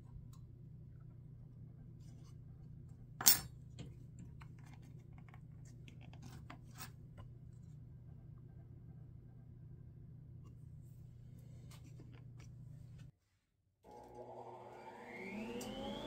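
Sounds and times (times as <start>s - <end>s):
light taps and scrapes: 3.8s - 7.8s.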